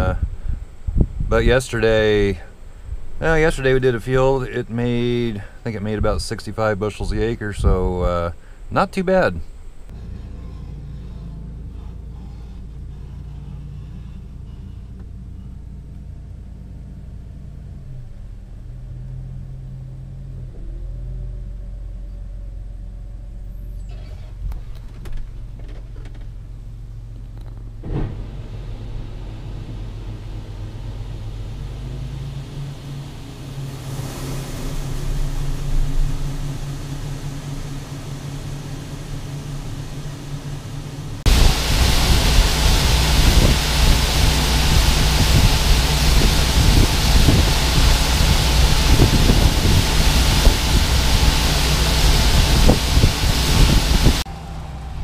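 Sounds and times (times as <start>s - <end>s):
tractor engine running: 0.0s - 55.0s
diesel truck engine idling: 9.5s - 20.4s, 25.3s - 55.0s
grain auger rushing: 27.8s - 55.0s.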